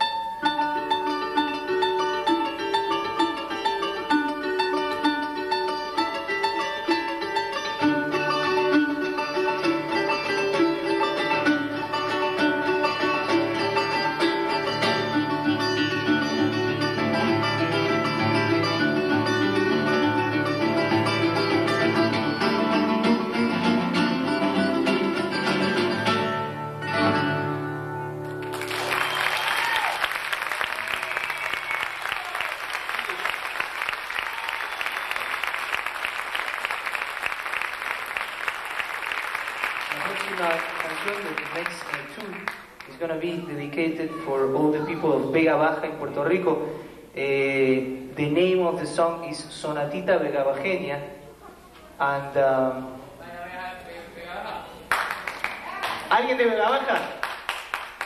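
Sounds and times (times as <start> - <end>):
cuatro and guitar duet: 0.0 - 58.0
audience applauding: 28.2 - 43.0, 54.9 - 58.0.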